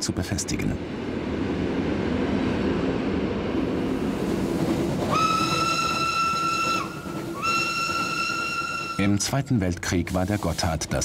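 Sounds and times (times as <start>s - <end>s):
train rumbling in tunnel: 0.0s - 11.0s
train horn: 5.1s - 9.0s.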